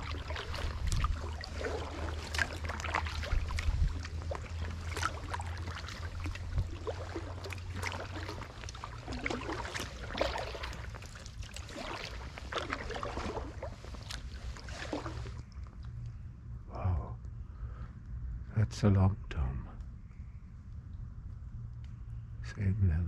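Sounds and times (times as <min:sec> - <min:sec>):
paddle splashing in water: 0:00.0 - 0:15.4
low steady rumble: 0:00.0 - 0:23.0.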